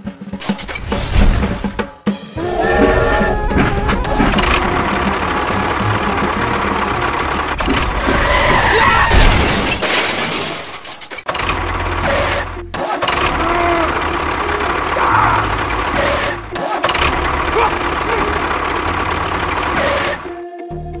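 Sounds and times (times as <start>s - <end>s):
background music: 0.0s - 8.4s, 19.9s - 21.0s
tractor engine running: 2.5s - 8.7s, 11.3s - 20.3s.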